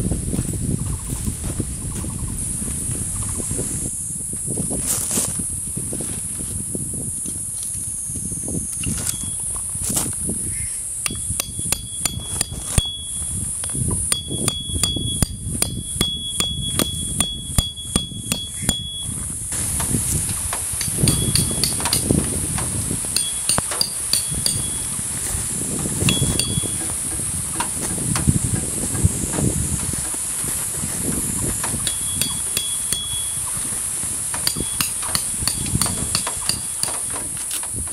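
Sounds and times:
hammer striking metal tent pegs: 0:11.1 - 0:19.2, 0:19.8 - 0:25.0, 0:25.9 - 0:28.7, 0:31.6 - 0:33.7, 0:34.3 - 0:37.8
steady high hiss: 0:16.6 - 0:37.9.

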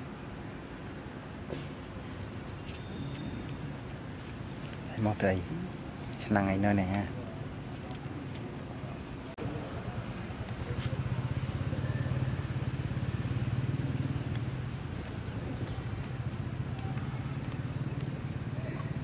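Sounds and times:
engine pulsing hum: 0:09.2 - 0:19.0.

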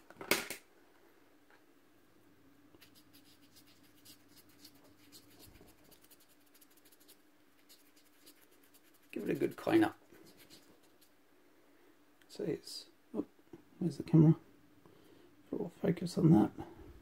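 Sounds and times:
cotton swab scrubbing: 0:02.8 - 0:11.2.

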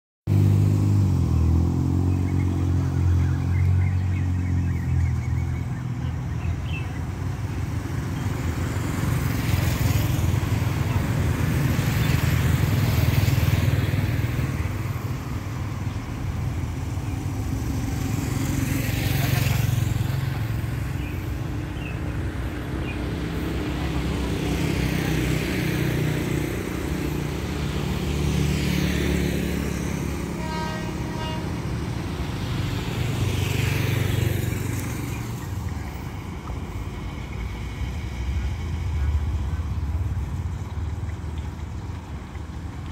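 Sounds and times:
low traffic rumble: 0:00.3 - 0:42.9
motorcycles and cars passing: 0:00.3 - 0:42.9
short vehicle horn: 0:30.3 - 0:31.7.

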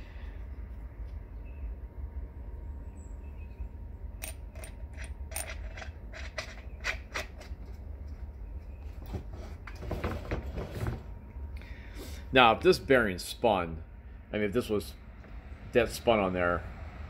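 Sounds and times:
steady low hum: 0:00.0 - 0:17.0
metal washer clinking on axle: 0:04.2 - 0:07.7.

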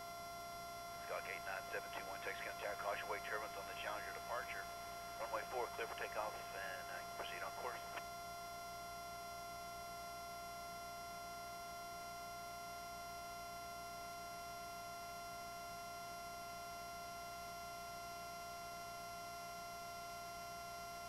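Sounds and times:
steady electrical whine: 0:00.0 - 0:13.1.

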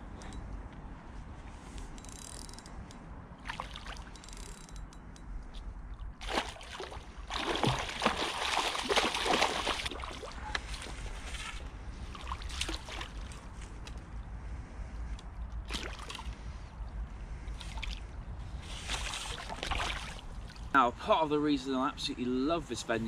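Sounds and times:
fish thrashing and splashing: 0:06.2 - 0:10.4.

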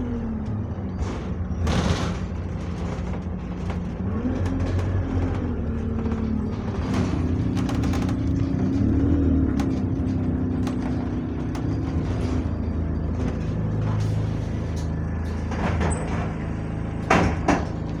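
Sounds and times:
bus engine running: 0:00.0 - 0:18.0
loud knocks: 0:01.0 - 0:13.4, 0:17.0 - 0:18.0.

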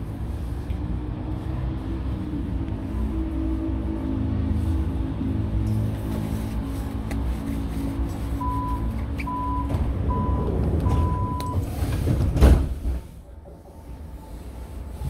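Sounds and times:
low hum of stationary train: 0:00.0 - 0:15.0
electronic warning beeps: 0:08.5 - 0:11.6
sliding doors shutting with thump: 0:09.0 - 0:14.0.

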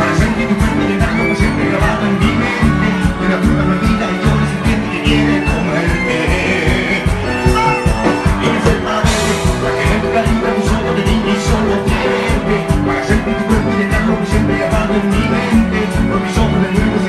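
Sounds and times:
loud live band music: 0:00.0 - 0:17.0.

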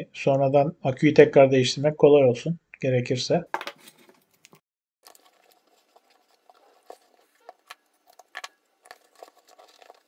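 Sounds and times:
foil tape crinkling and rubbing: 0:05.0 - 0:10.0.

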